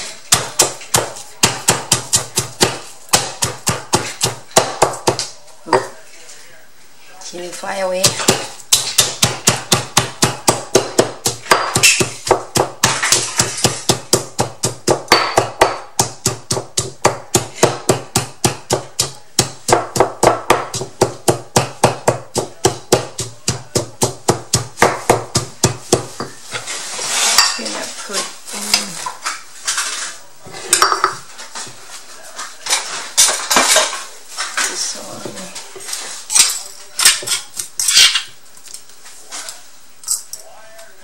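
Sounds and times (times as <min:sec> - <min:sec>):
stone pestle pounding in mortar: 0:00.3 - 0:05.3, 0:08.0 - 0:26.3.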